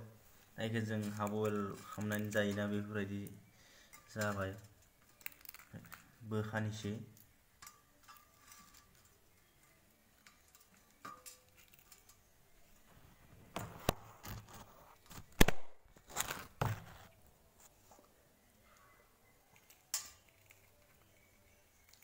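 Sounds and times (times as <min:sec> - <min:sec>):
light clicks and taps on a pan: 0:07.2 - 0:12.2.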